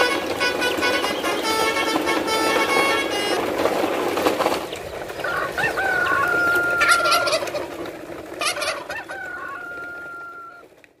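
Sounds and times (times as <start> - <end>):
rooster crowing: 5.2 - 7.7, 8.5 - 10.7.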